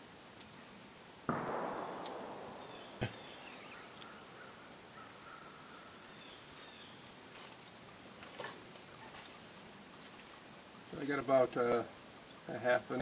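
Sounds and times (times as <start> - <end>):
sharp knock: 1.3 - 4.5.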